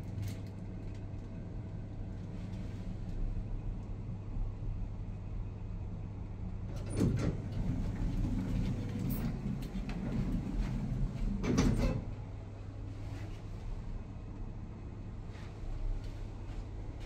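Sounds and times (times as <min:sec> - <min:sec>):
steady low hum: 0:00.0 - 0:17.0
lift doors clattering: 0:06.7 - 0:12.2.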